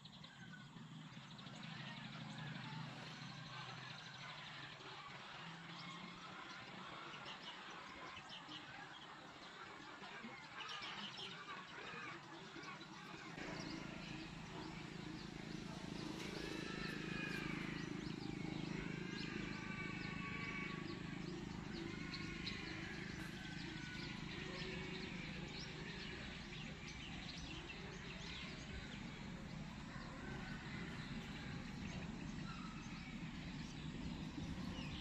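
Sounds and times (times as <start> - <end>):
small birds chirping: 0.0 - 35.0
low steady hum: 13.2 - 35.0.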